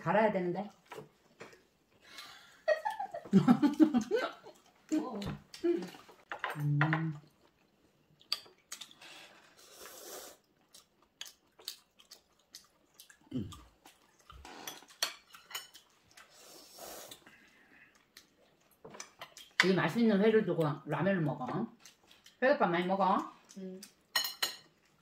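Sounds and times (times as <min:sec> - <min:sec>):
chopsticks clinking on plates: 0:14.7 - 0:15.9, 0:24.1 - 0:24.7.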